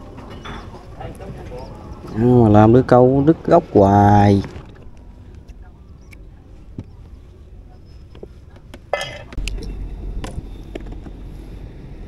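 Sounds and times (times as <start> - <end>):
low rumble: 9.4 - 12.0.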